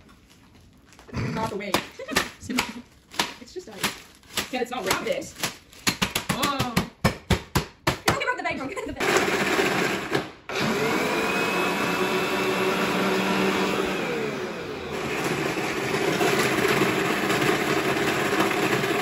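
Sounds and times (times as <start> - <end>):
blender motor crushing ice: 9.0 - 19.0.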